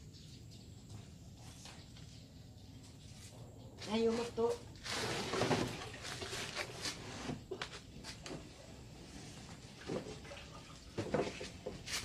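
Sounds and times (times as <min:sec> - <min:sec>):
rustling and scuffing: 0:02.8 - 0:08.7, 0:10.8 - 0:12.0.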